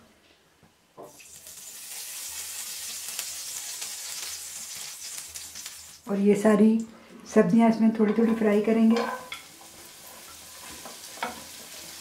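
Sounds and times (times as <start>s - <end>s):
oil sizzling in frying pan: 1.1s - 6.1s, 9.0s - 12.0s.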